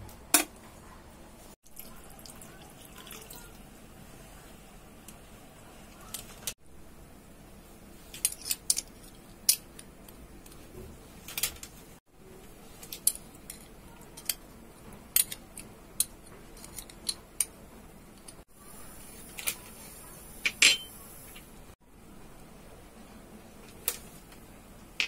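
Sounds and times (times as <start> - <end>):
faint room hum: 0.0 - 25.0
glass bowl and spoon clinking: 20.5 - 21.0.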